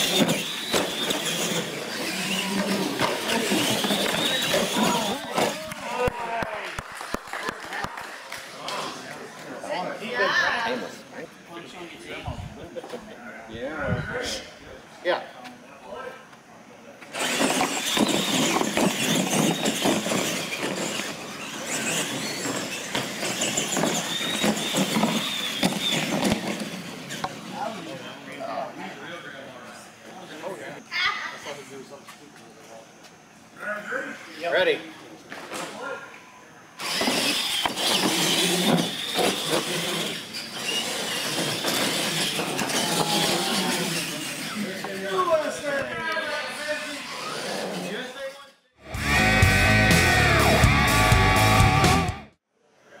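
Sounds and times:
toy truck motor whine: 0:00.0 - 0:05.7, 0:17.1 - 0:27.8, 0:36.8 - 0:45.6, 0:46.4 - 0:48.2
tyre noise on concrete: 0:00.0 - 0:06.5, 0:17.0 - 0:27.7, 0:36.8 - 0:45.0
toy trucks knocking on ramps: 0:17.2 - 0:27.4.

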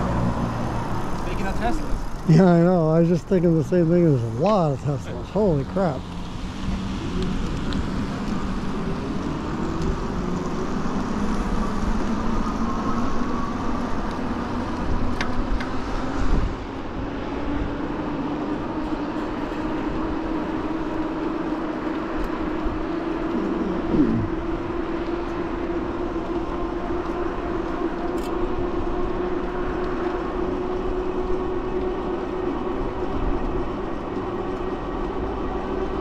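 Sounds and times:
wind: 0:00.0 - 0:36.0
tyre noise: 0:23.2 - 0:24.5.

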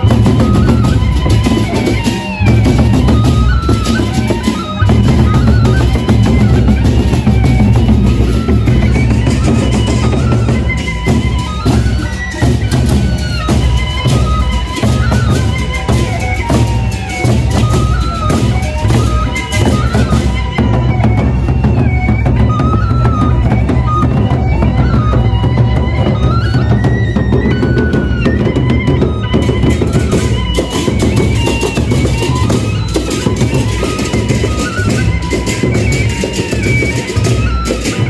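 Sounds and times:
large drums beaten: 0:00.0 - 0:38.0.

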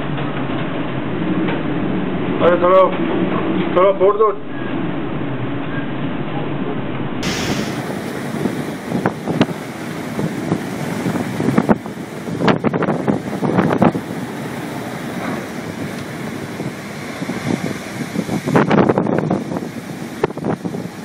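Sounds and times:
storm wind on microphone: 0:00.0 - 0:21.0
heavy seas breaking: 0:06.0 - 0:21.0.

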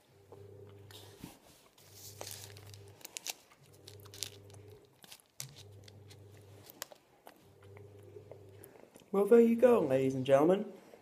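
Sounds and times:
low steady hum: 0:00.0 - 0:11.0
chewing chocolate: 0:02.2 - 0:09.2.

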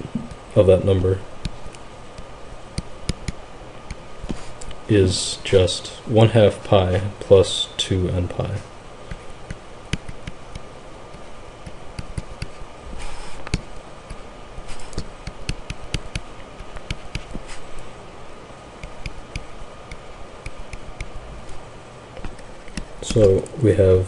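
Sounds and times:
faint steady hum: 0:00.0 - 0:24.0
stylus tapping on tablet: 0:01.4 - 0:04.0, 0:09.1 - 0:12.6, 0:15.0 - 0:17.4, 0:18.8 - 0:21.1.

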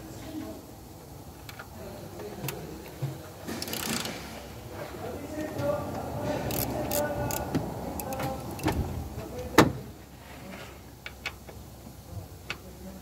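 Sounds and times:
ratchet clicking: 0:03.6 - 0:04.1, 0:06.4 - 0:08.7
sharp metallic click: 0:06.5 - 0:08.7.

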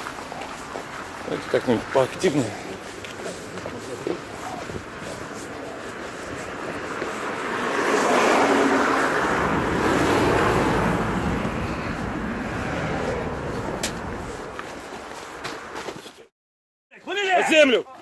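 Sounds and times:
wind buffeting microphone: 0:08.2 - 0:14.6.

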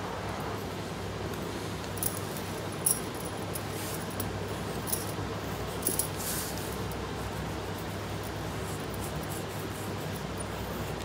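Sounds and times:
steady background hum: 0:00.0 - 0:11.0
bangles clinking: 0:02.0 - 0:05.2, 0:05.8 - 0:06.2.

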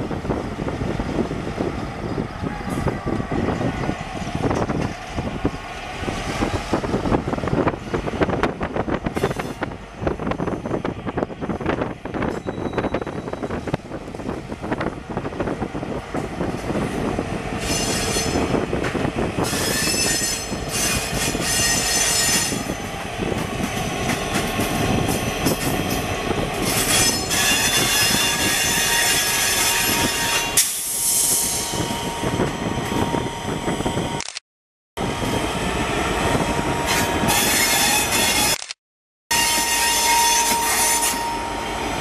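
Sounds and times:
diesel locomotive engine running: 0:00.0 - 0:29.4, 0:35.0 - 0:38.5
high ringing tone: 0:12.4 - 0:13.5, 0:39.4 - 0:42.0.

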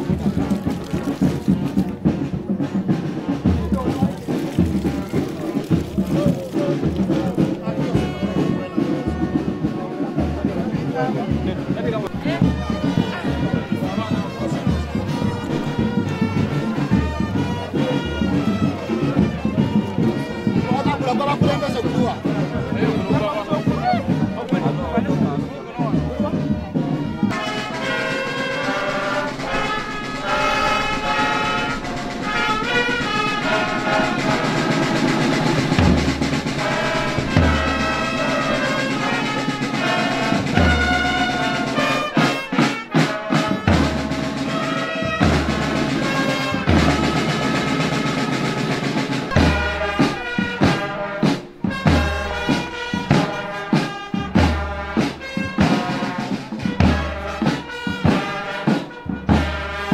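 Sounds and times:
bass drum beating: 0:00.0 - 0:27.5, 0:28.7 - 0:42.0
brass band playing: 0:00.0 - 0:59.9.

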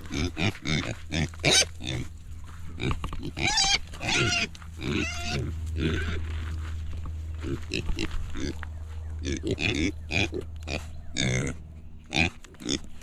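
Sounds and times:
pigs squealing and grunting: 0:00.0 - 0:02.1, 0:02.7 - 0:06.3, 0:07.4 - 0:08.6, 0:09.2 - 0:13.0.

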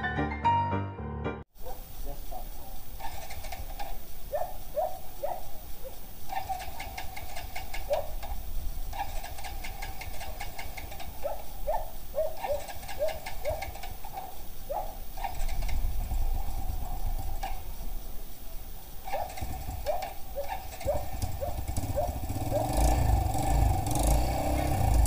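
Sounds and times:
electric starter cranking engine: 0:03.0 - 0:04.1, 0:06.2 - 0:11.6, 0:12.4 - 0:14.2, 0:15.1 - 0:17.6, 0:19.0 - 0:25.0.

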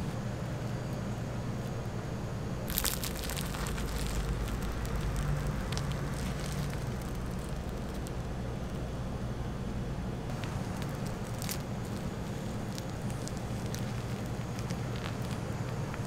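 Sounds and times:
steady low hum: 0:00.0 - 0:16.0
waffle crust crackling: 0:02.6 - 0:09.0, 0:10.3 - 0:16.0.

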